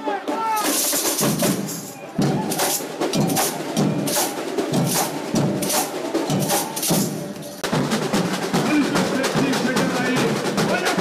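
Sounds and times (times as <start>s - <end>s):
samba drumming: 0.0s - 11.0s
rattling shakers: 0.6s - 7.7s
deep bass drums: 1.3s - 6.5s.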